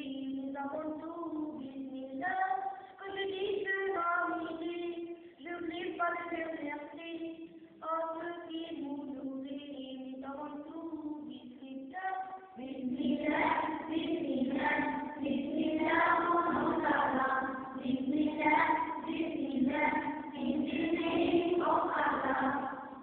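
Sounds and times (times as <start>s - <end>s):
children singing: 12.0s - 23.0s.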